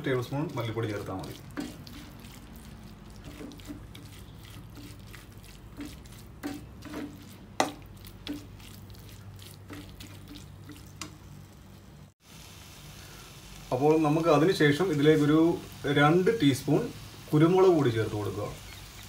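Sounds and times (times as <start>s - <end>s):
metal spoon scraping frying pan: 0.5s - 2.4s, 3.1s - 8.8s.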